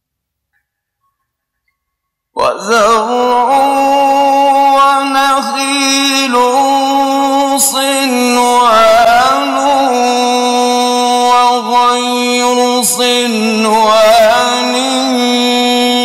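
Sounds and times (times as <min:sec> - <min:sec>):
man chanting recitation: 0:02.4 - 0:16.0.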